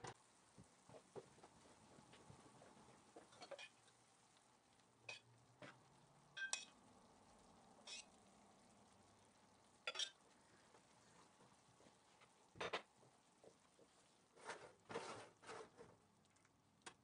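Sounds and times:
syrup sizzling on hot pastry: 0.1s - 16.8s
ladle clinking against metal pot: 6.4s - 6.7s.

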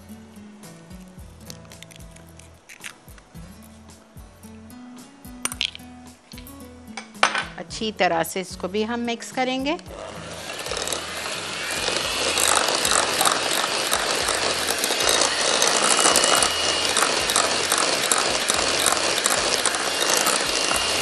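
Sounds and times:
hand mixer motor whine: 9.8s - 21.0s.

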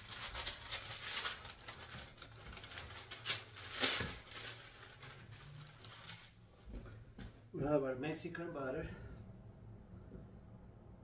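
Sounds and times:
paper crinkling and rustling: 0.0s - 7.0s.

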